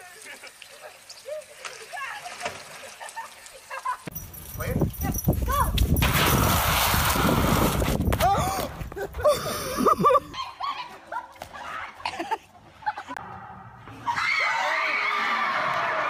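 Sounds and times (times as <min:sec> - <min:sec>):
laughter: 0:00.0 - 0:01.0, 0:02.7 - 0:04.1, 0:09.0 - 0:11.4, 0:12.0 - 0:13.2.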